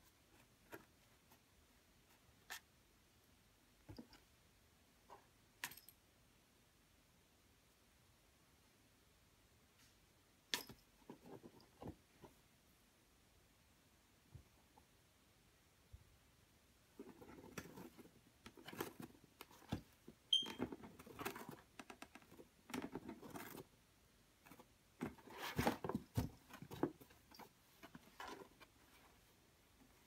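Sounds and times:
cats scratching and rustling: 0:16.9 - 0:23.8, 0:24.4 - 0:30.0.

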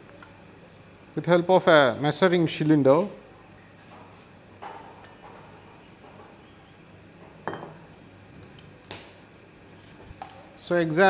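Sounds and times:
glassware chinking: 0:05.0 - 0:05.5, 0:07.4 - 0:07.8.

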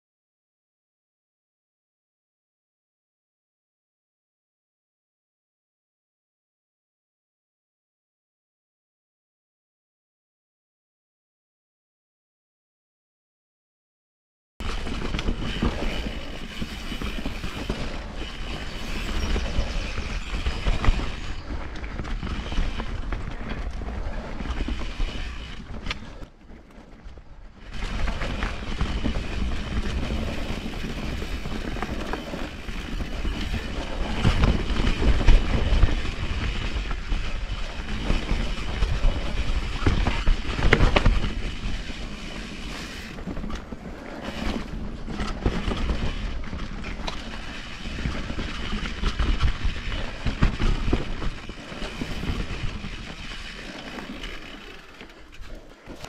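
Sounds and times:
bike chain and frame rattling: 0:14.6 - 0:56.0
bike tyres over dirt: 0:14.6 - 0:56.0.

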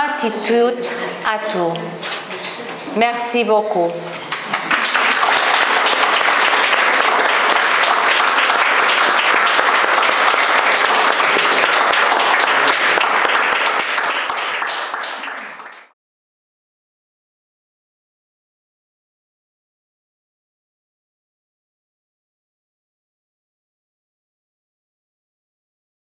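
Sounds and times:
audience applauding: 0:04.1 - 0:16.0.

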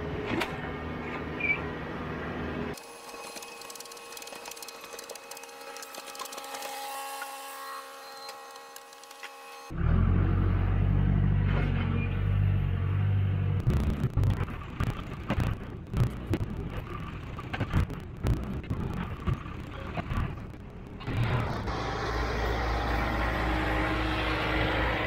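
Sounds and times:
knocks and clatter: 0:13.6 - 0:21.6
diesel engine running: 0:17.9 - 0:25.0.

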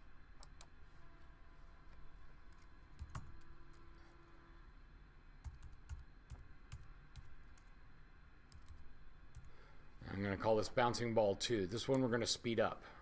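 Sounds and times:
computer keyboard typing: 0:02.5 - 0:03.5, 0:05.4 - 0:07.7, 0:08.5 - 0:09.6.

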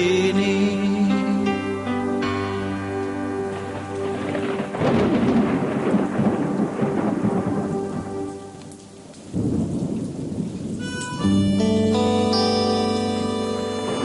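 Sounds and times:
sustained musical chord: 0:00.0 - 0:08.9, 0:10.8 - 0:14.0
rain: 0:00.0 - 0:14.0
thunder rumbling: 0:02.2 - 0:11.5.

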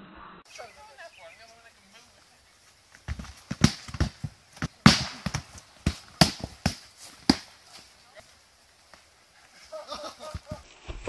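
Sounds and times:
foam swords thwacking shields: 0:03.1 - 0:07.5.

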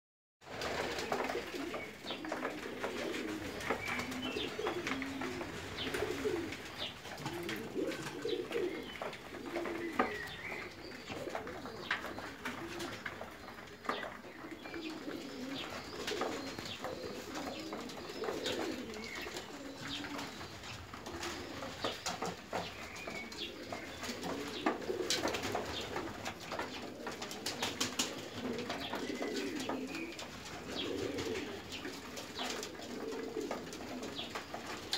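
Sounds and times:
birds pecking at trough: 0:00.4 - 0:34.9
pigeons cooing: 0:00.5 - 0:34.9.

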